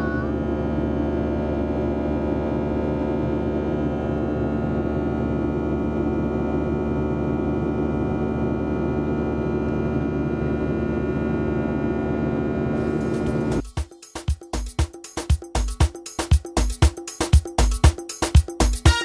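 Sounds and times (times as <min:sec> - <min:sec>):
jet engine drone in cabin: 0:00.1 - 0:13.6.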